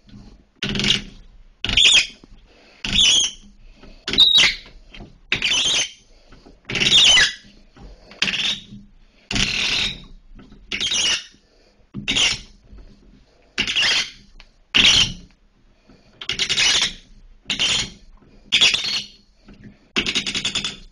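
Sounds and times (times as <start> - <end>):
shower cartridge squeaking: 0.6 - 2.2, 2.8 - 6.0, 6.6 - 7.5, 8.2 - 11.4, 12.0 - 12.5, 13.6 - 15.2, 16.2 - 19.2, 20.0 - 20.9.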